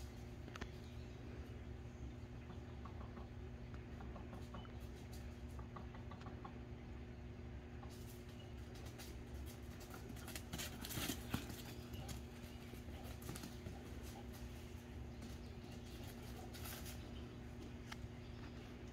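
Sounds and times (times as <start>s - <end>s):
faint steady hum: 0.0s - 18.9s
puppy paws on dry leaves: 7.9s - 18.9s.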